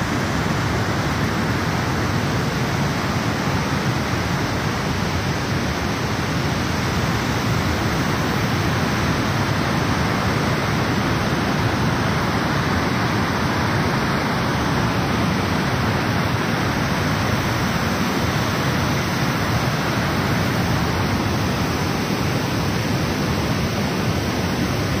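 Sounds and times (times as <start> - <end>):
rush of falling water: 0.0 - 25.0.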